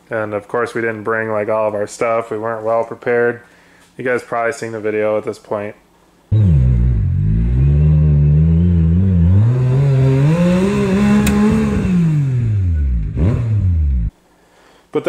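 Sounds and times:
engine revving under load: 6.3 - 14.1
sharp click: 11.2 - 11.7.

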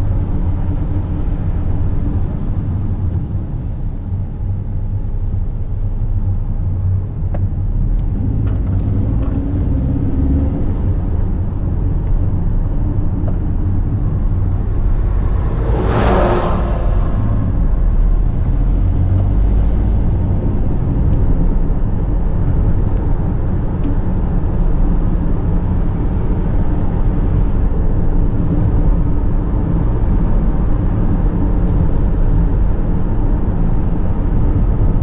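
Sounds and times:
car engine and tyres rumbling: 0.0 - 35.0
truck passing by: 14.2 - 20.9.

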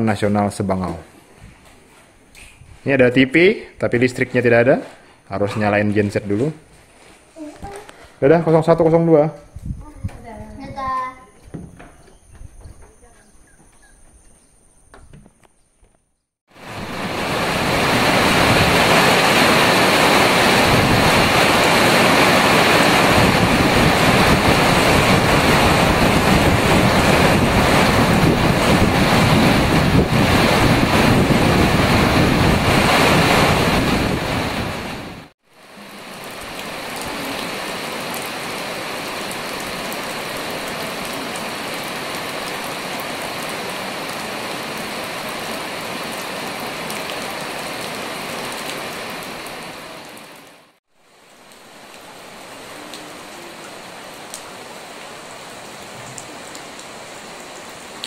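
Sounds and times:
heavy rain on foliage: 7.0 - 9.2, 16.5 - 58.0.

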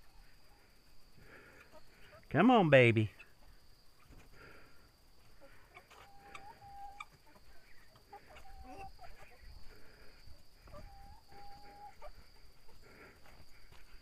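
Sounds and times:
crickets trilling: 0.0 - 14.0
hen calling: 5.4 - 9.4.

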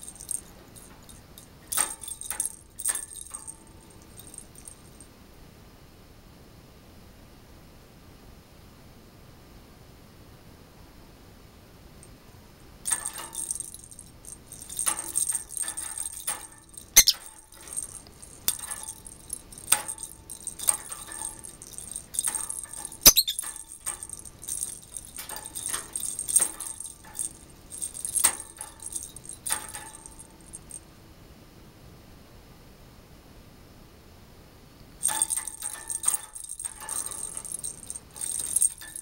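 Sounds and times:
bell jingling in toy: 0.0 - 5.1, 12.9 - 30.8, 35.0 - 39.0.

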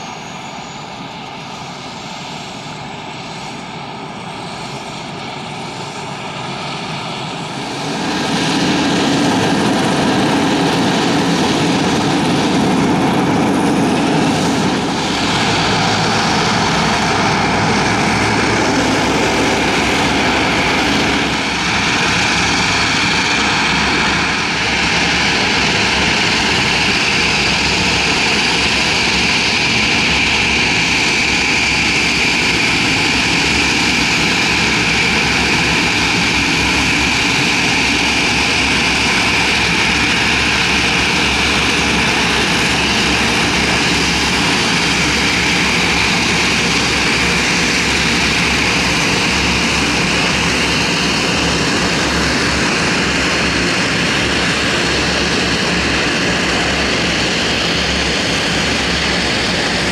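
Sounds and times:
turboprop engines whining: 0.0 - 59.9.

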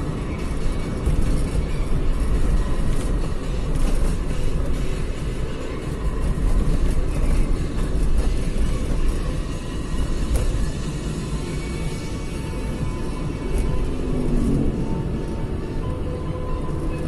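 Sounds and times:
vehicle engine and road rumble: 0.0 - 17.0.

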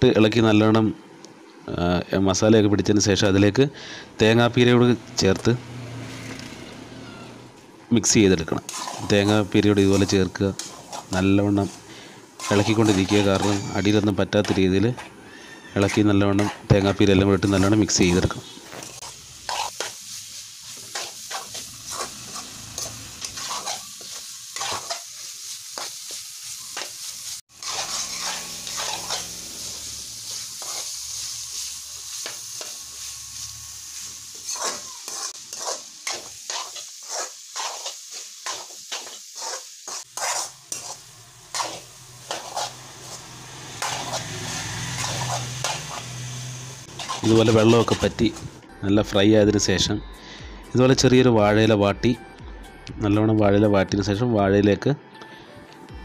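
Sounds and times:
meat sizzling in a metal pan: 8.0 - 48.6
steel spoon scraping a pan: 8.6 - 26.1, 26.8 - 33.1, 34.3 - 48.5.

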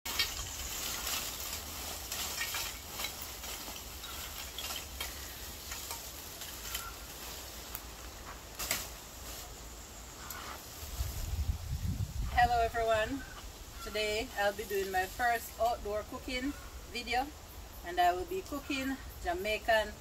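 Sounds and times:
charcoal clattering into metal pot: 0.1 - 7.0.

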